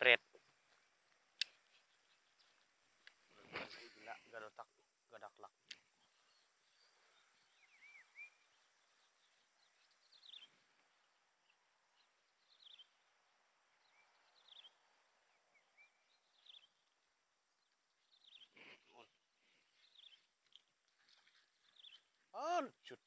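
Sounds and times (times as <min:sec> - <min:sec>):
faint bird chirps: 0:00.0 - 0:23.0.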